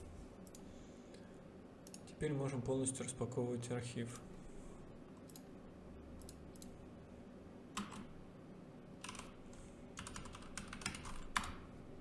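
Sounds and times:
keyboard keystrokes: 7.8s - 8.1s, 10.0s - 11.6s.

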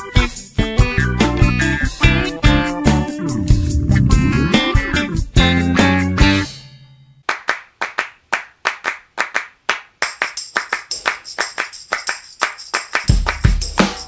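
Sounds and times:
tambourine jingle: 0.0s - 4.5s, 10.0s - 14.0s
deep bass beat: 0.7s - 6.4s
hand claps beat: 7.2s - 14.0s.

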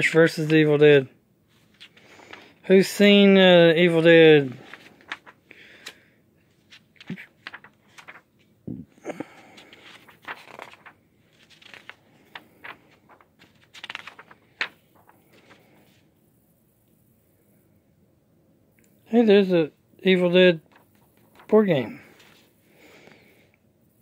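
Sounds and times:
paper pages turning: 1.5s - 2.6s, 4.4s - 8.6s, 9.4s - 16.1s, 20.6s - 22.5s.

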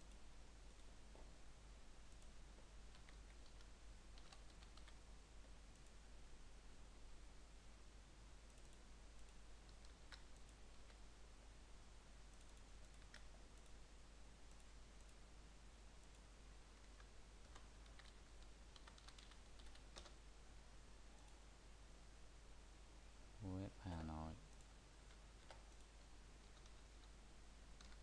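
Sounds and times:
low hum and hiss: 0.0s - 28.0s
computer mouse clicks: 2.9s - 5.0s, 8.4s - 11.0s, 12.3s - 13.8s, 16.8s - 20.2s, 24.5s - 27.2s, 27.8s - 28.0s
keyboard typing: 2.9s - 5.0s, 8.5s - 11.0s, 12.3s - 13.8s, 16.7s - 20.2s, 24.5s - 27.2s, 27.8s - 28.0s.

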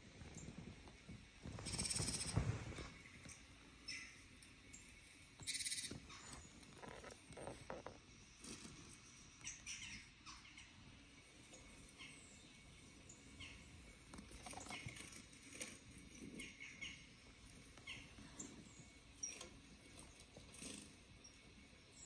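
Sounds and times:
faint bird chirps from speaker: 5.4s - 6.4s.

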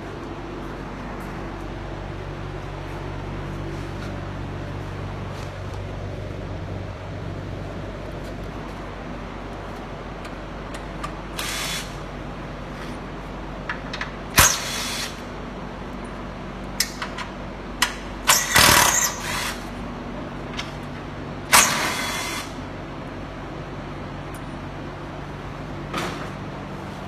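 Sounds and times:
shop hum: 0.0s - 27.0s
power driver whirring: 11.3s - 12.0s.

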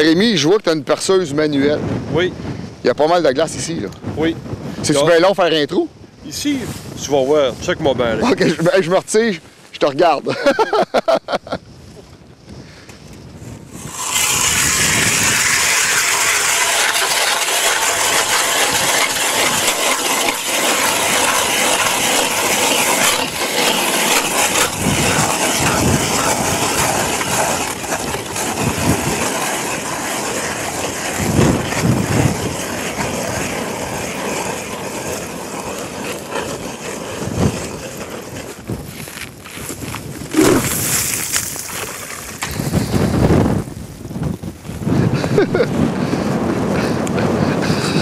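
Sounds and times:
ice auger scraping through ice: 13.7s - 48.0s.

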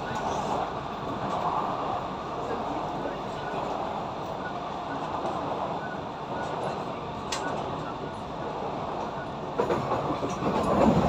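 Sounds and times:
train wheels rumbling: 5.0s - 11.0s.

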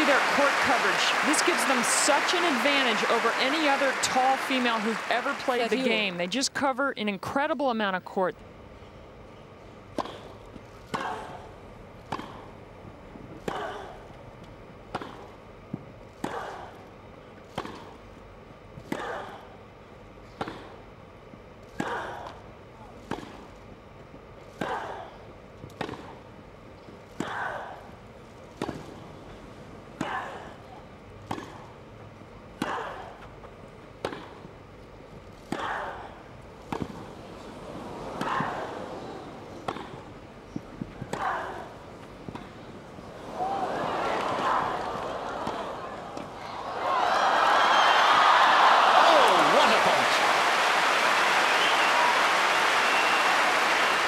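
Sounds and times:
tennis ball hit by racket: 12.1s - 12.4s, 20.4s - 20.7s, 31.2s - 31.6s, 34.0s - 34.4s, 36.7s - 37.0s, 39.6s - 40.0s.

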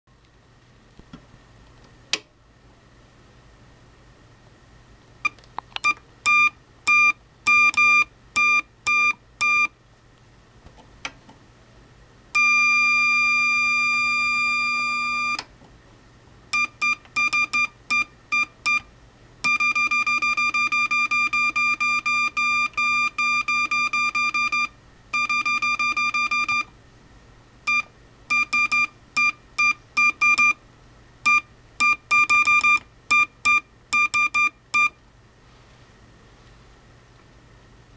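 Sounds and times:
morse code beeps: 5.8s - 9.7s, 12.4s - 15.4s, 16.6s - 18.9s, 19.5s - 26.7s, 27.7s - 30.6s, 31.2s - 35.0s.

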